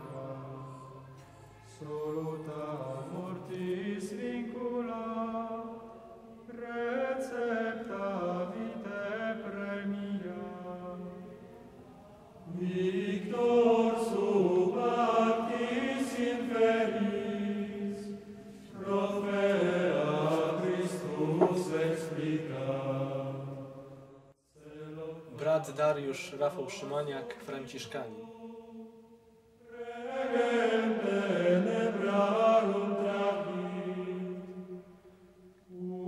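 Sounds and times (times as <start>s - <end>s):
voices singing a chant: 0.0s - 36.0s.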